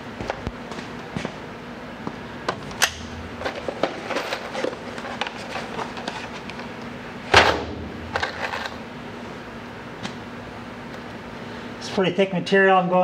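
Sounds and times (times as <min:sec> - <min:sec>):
steady low hum: 0:00.0 - 0:13.0
clicks and knocks of parts handled: 0:02.5 - 0:06.7.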